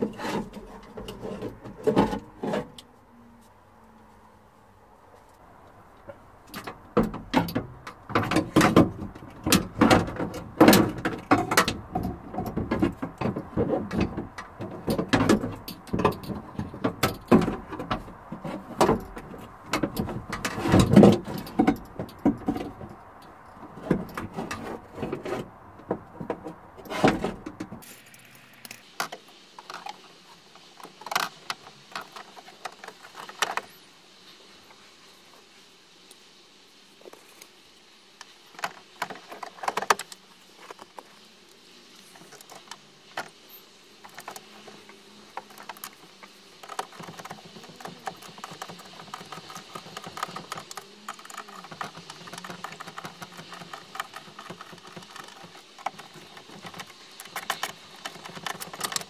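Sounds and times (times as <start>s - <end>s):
metal and plastic parts clanking: 0.0s - 2.8s, 6.4s - 30.0s, 45.4s - 59.0s.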